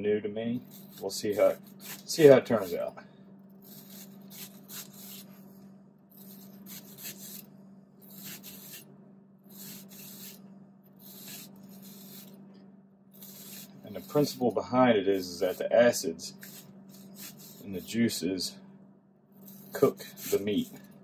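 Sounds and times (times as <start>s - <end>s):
low steady hum: 0.0s - 21.0s
knife slicing onion on board: 0.6s - 2.9s, 3.6s - 5.3s, 6.2s - 8.9s, 11.0s - 12.3s, 16.3s - 17.7s.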